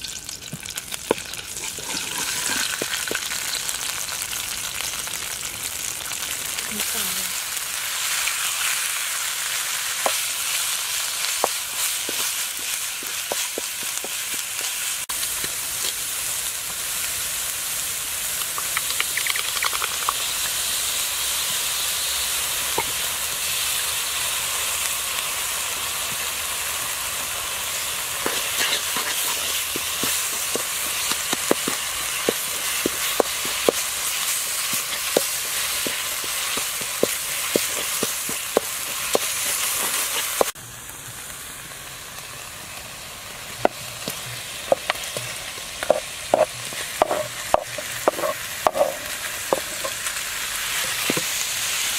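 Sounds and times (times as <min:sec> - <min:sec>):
paste sizzling in hot oil: 0:00.0 - 0:40.6, 0:41.3 - 0:51.9
wooden spoon scraping a pan: 0:01.6 - 0:03.2, 0:11.4 - 0:14.8, 0:28.2 - 0:40.6, 0:44.0 - 0:50.1.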